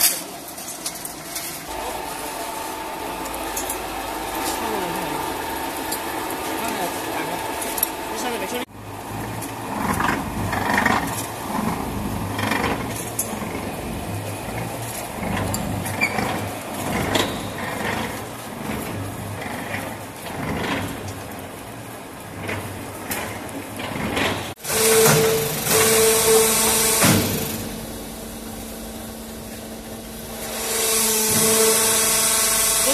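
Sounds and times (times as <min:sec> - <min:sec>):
machinery motor hum: 0:00.2 - 0:32.9
machinery rattles and knocks: 0:09.2 - 0:27.6.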